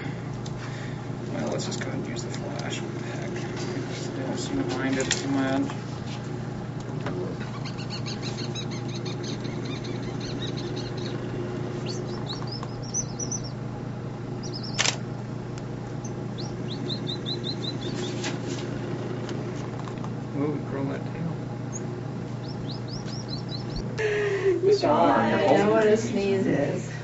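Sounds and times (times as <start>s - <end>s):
steady low hum: 0.0s - 27.0s
baby monkeys chirping: 7.4s - 13.6s, 14.4s - 15.0s, 16.0s - 18.3s, 21.7s - 23.8s
sharp click: 14.7s - 15.0s.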